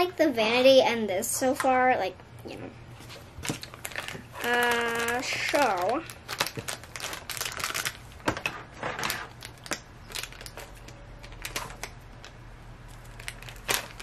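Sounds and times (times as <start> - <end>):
plastic bag crinkling: 3.0 - 14.0
scissors cutting plastic bag: 3.4 - 12.3, 12.9 - 14.0.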